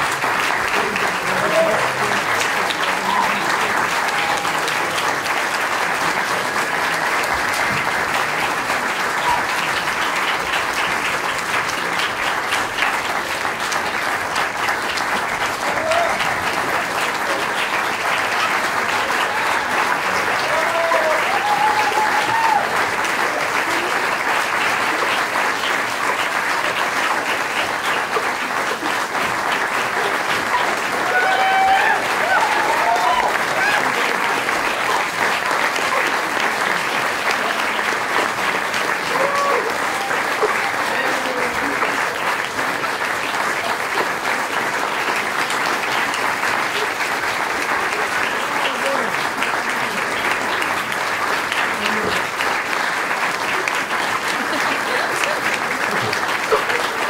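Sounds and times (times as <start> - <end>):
crowd calls: 0.0 - 5.4, 15.5 - 25.6, 29.6 - 42.1
audience applauding: 0.0 - 57.0.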